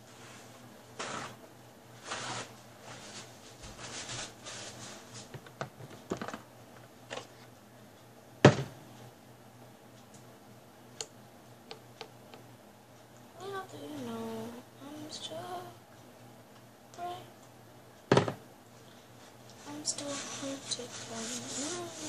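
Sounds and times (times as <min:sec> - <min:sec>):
rustling: 0:02.0 - 0:05.3, 0:19.6 - 0:22.0.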